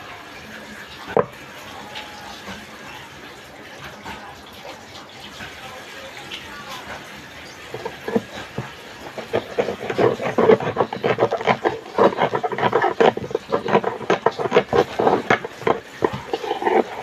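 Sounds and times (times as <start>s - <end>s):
knife scraping tin can lid: 7.7s - 17.0s.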